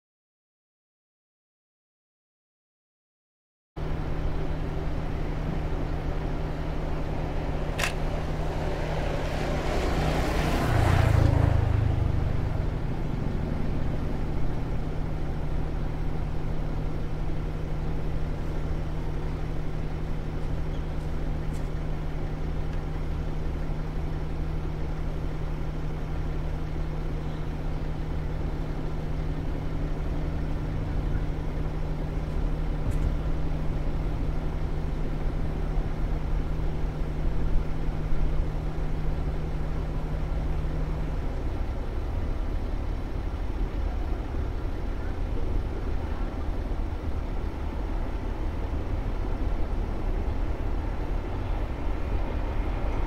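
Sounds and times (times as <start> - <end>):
vehicle passing: 7.4 - 13.6
sharp click: 7.8 - 8.0.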